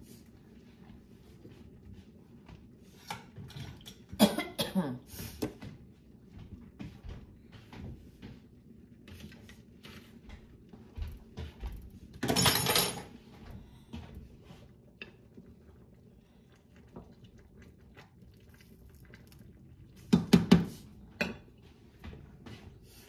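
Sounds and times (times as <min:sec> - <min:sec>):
cough-like sound: 0:04.2 - 0:05.1.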